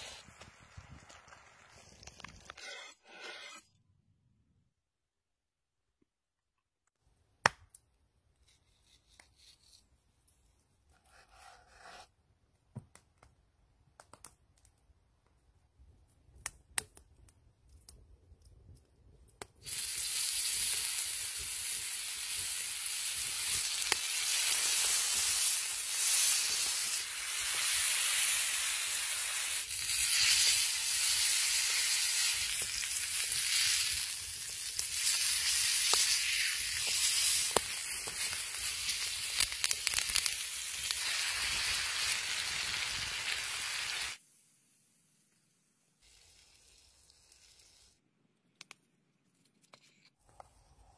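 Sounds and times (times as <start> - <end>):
steak sizzling on a hot griddle: 19.6 - 44.2.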